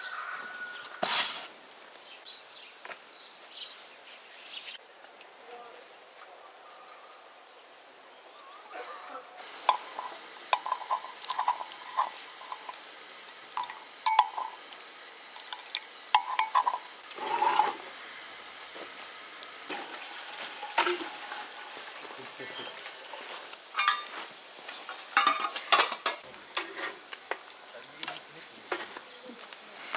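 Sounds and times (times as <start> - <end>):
spoon scraping bowl: 9.6 - 12.8, 16.2 - 17.8
metal spoon clinking against bowl: 13.6 - 14.6, 16.2 - 16.8, 23.8 - 24.1.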